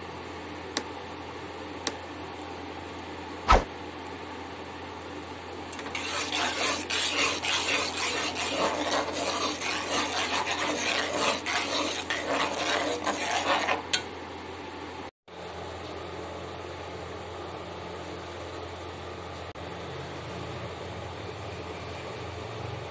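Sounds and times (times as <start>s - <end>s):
spoon scraping metal wok: 5.7s - 14.1s.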